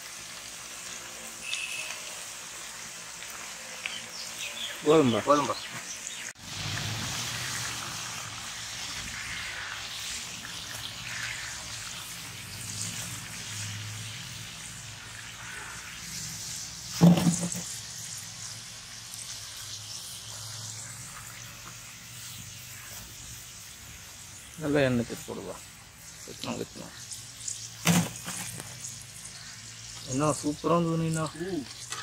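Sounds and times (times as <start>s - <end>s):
food deep-frying in hot oil: 0.0s - 32.0s.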